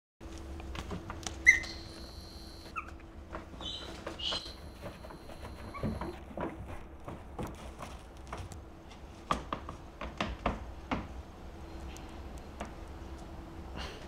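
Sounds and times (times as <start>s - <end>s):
puppies rustling on paper: 0.2s - 9.8s
puppies squeaking: 1.4s - 3.0s, 3.6s - 4.7s, 5.3s - 6.2s.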